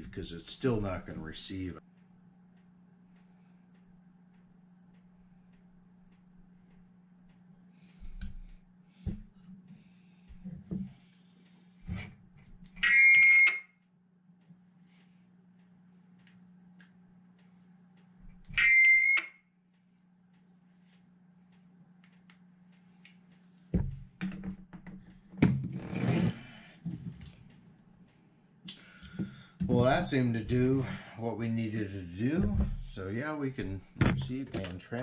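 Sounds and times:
faint steady hum: 0.0 - 35.0
electronic radio beeps: 12.8 - 13.7.

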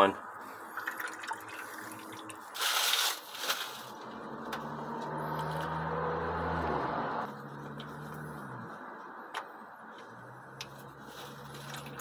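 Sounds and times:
fluid dribbling into metal pan: 0.7 - 2.5.

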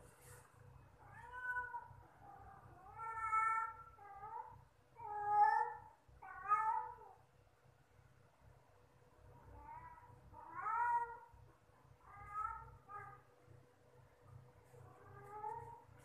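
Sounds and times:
cat meowing: 1.1 - 1.9, 9.6 - 11.3, 12.0 - 13.3.

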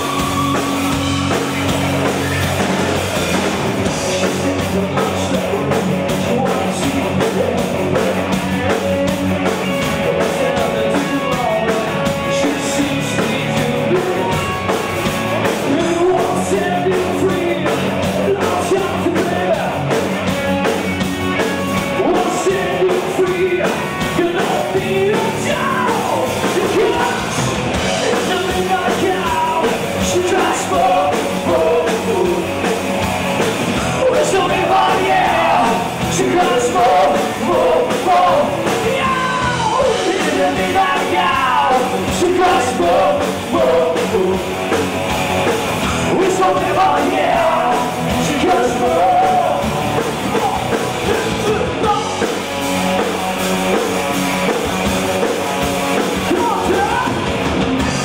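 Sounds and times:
live rock band with singer: 0.0 - 58.0.

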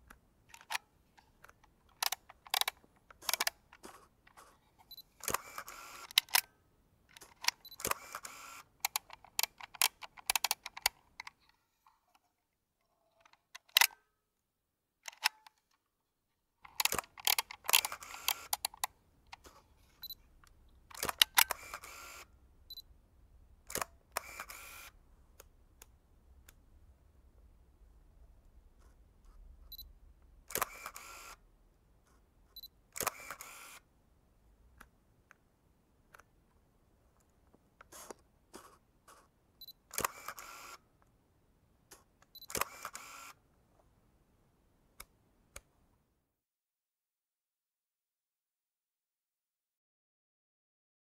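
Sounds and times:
camera shutter and lever clicks: 0.5 - 11.6, 13.2 - 14.0, 15.0 - 15.8, 16.6 - 22.3, 23.6 - 25.9, 30.5 - 31.4, 32.5 - 33.9, 37.8 - 40.8, 41.9 - 43.4
camera mechanism rasping: 2.0 - 6.5, 7.1 - 11.4, 16.7 - 20.1, 20.9 - 22.3, 30.5 - 31.4, 33.0 - 33.8, 37.8 - 39.2, 39.9 - 40.8, 42.5 - 43.4.

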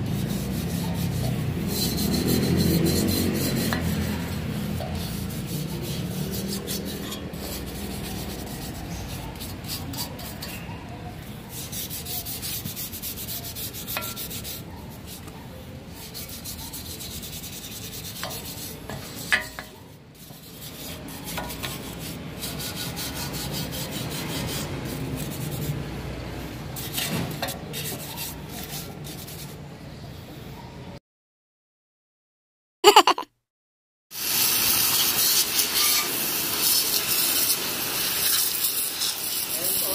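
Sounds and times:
hand sanding metal: 0.0 - 10.6, 11.5 - 15.3, 15.9 - 25.8, 26.8 - 29.5.

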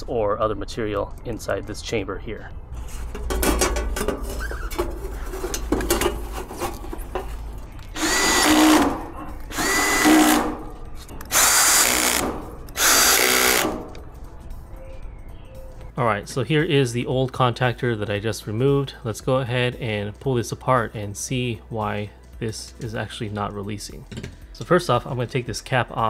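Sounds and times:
metal panel knocks and rattles: 3.1 - 6.2
cordless drill whine driving screws: 7.9 - 10.5, 11.3 - 13.8.

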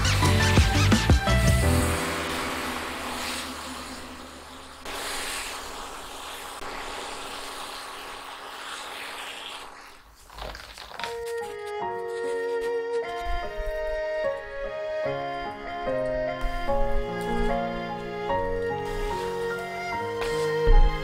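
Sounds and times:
background music chord: 0.2 - 4.8, 11.6 - 21.0
apple slices sizzling in pan: 1.5 - 11.4, 16.6 - 21.0.

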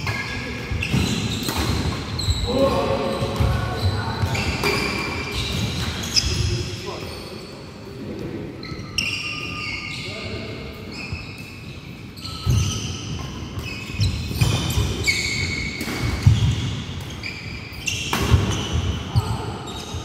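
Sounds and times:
rackets hitting shuttlecock: 0.1 - 2.1, 12.4 - 17.2, 17.9 - 18.9
shoes squeaking on wooden floor: 10.9 - 16.6.

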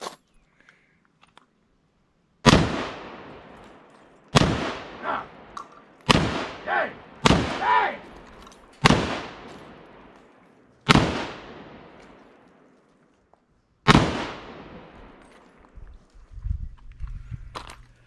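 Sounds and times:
rifle shots echoing: 2.4 - 12.7, 13.8 - 15.5.

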